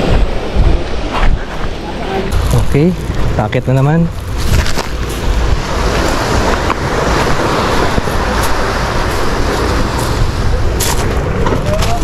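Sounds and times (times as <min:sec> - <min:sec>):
sea surf washing on shore: 0:00.0 - 0:12.0
wind buffeting microphone: 0:00.0 - 0:12.0
footsteps on rock: 0:04.1 - 0:05.4.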